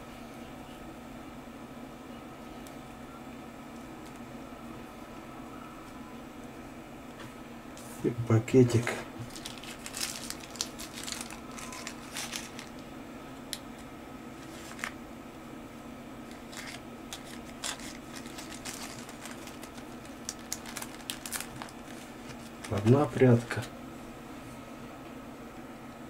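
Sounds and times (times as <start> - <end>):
plastic bag crinkling: 9.2 - 12.8, 14.4 - 15.0, 16.2 - 23.7.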